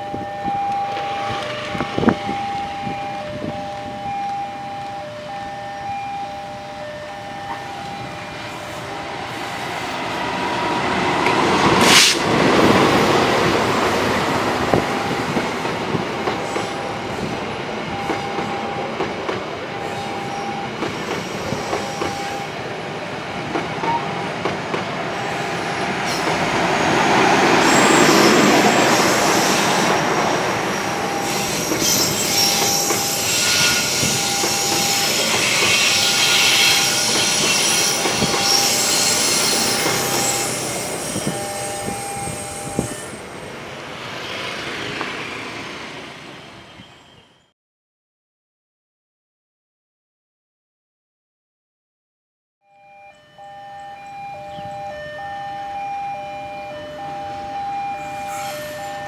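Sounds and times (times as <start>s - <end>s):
level crossing alarm tone: 0.0s - 10.1s, 14.0s - 24.3s, 25.1s - 43.5s, 52.6s - 59.0s
diesel locomotive passing: 0.0s - 47.2s, 53.0s - 59.0s
train wheel squeal: 19.7s - 22.6s, 25.1s - 26.4s, 27.5s - 43.3s, 57.2s - 59.0s
train wheel clatter: 25.9s - 42.9s.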